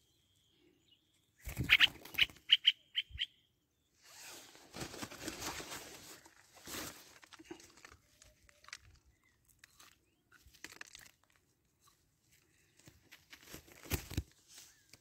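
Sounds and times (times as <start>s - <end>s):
distant bird chirps: 0.0s - 4.1s
dry brush crackling and rustling: 4.1s - 9.1s.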